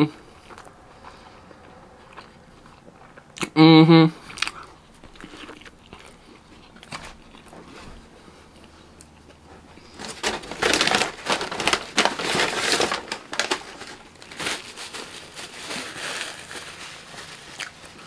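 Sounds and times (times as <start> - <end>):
paper wrapper crinkling: 9.8 - 18.0.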